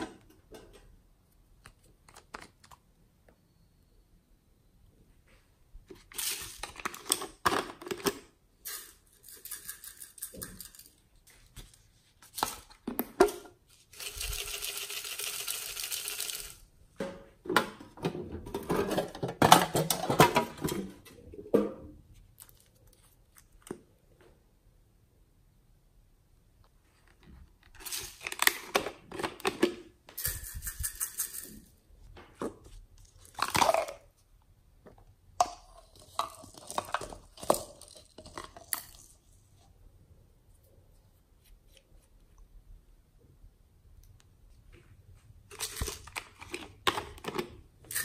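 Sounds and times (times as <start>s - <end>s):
plastic containers clicking and rattling: 5.9s - 11.0s, 17.5s - 21.2s, 27.6s - 31.7s, 32.4s - 34.1s, 34.8s - 39.2s, 45.5s - 48.0s.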